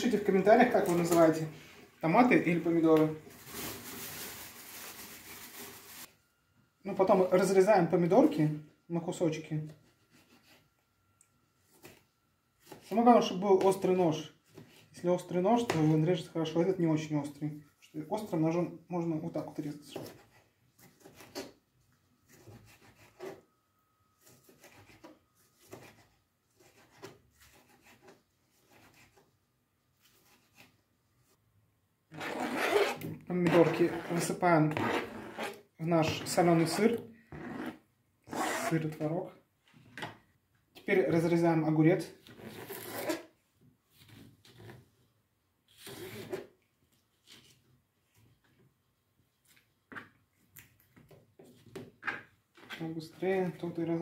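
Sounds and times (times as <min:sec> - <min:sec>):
person talking: 0:00.0 - 0:03.3, 0:06.8 - 0:09.8, 0:12.9 - 0:20.1, 0:33.1 - 0:35.1, 0:35.8 - 0:37.2, 0:38.3 - 0:39.4, 0:40.8 - 0:42.2, 0:52.7 - 0:54.0.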